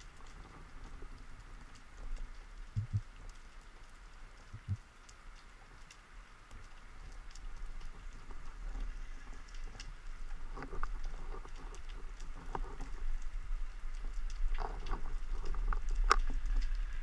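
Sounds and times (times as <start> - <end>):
low underwater rumble: 0.0 - 3.3, 4.4 - 4.9
underwater clicks and crackles: 0.0 - 17.0.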